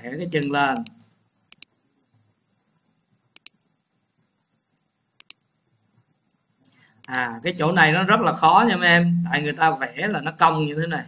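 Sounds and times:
computer mouse clicks: 0.3s - 1.8s, 3.0s - 3.7s, 4.7s - 5.5s, 6.2s - 7.2s.

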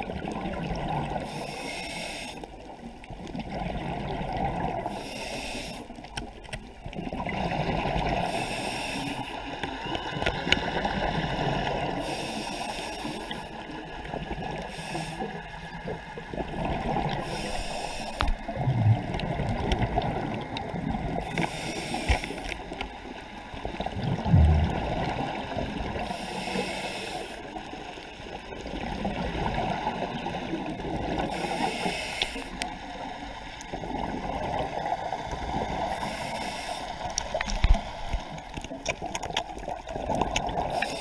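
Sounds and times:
diver breathing through regulator: 1.2s - 2.5s, 4.8s - 6.0s, 8.1s - 9.4s, 11.9s - 13.6s, 14.6s - 15.5s, 17.1s - 18.4s, 21.2s - 22.6s, 25.8s - 27.6s, 31.2s - 32.6s, 35.9s - 37.3s, 40.6s - 41.0s.

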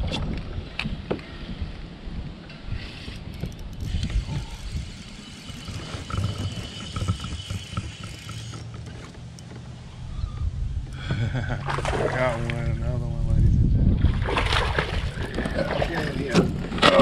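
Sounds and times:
wind on microphone: 0.0s - 8.3s, 9.8s - 17.0s
water around kayak: 0.0s - 17.0s
fishing reel ticking: 2.9s - 9.4s.

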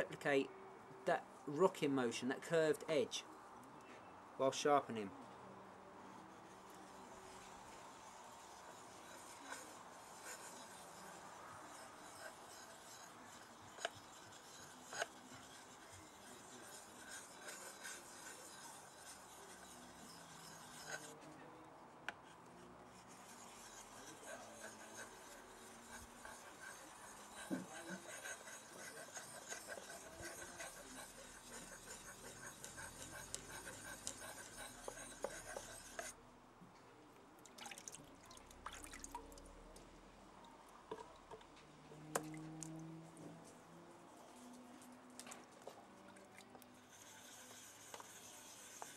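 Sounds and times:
knife scraping on water stone: 6.2s - 21.4s, 22.1s - 36.2s, 45.2s - 48.9s.

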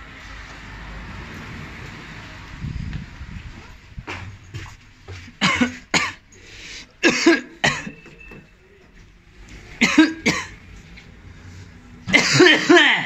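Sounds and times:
person coughing: 5.4s - 6.2s, 7.0s - 8.1s, 9.8s - 10.6s, 12.1s - 13.0s.

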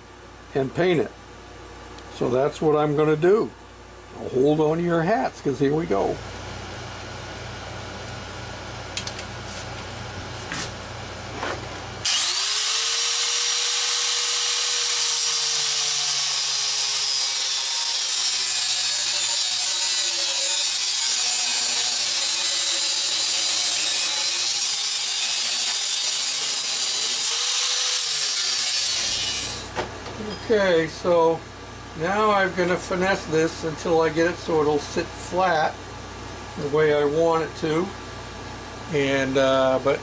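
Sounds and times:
angle grinder cutting metal: 12.0s - 29.7s.

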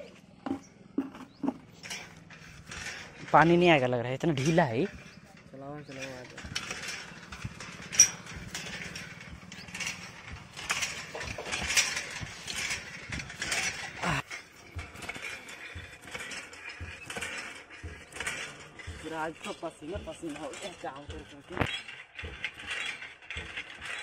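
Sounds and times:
hand pump clanking and rattling: 0.2s - 24.0s.

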